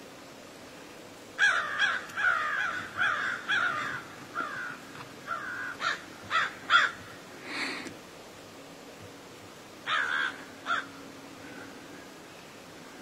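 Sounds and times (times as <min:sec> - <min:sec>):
crow cawing: 0:01.4 - 0:07.2, 0:09.8 - 0:11.7.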